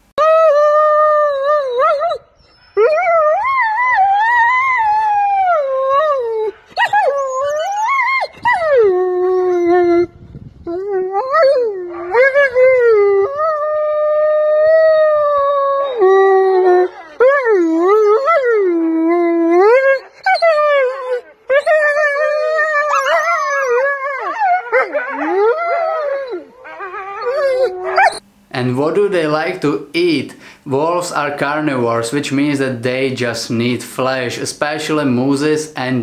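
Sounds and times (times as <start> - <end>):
wolf howling: 0.2 - 10.1, 10.7 - 28.2.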